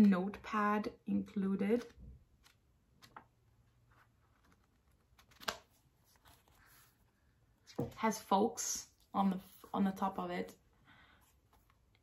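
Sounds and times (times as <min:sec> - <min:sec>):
notepad taps and rustles: 0:01.8 - 0:06.8.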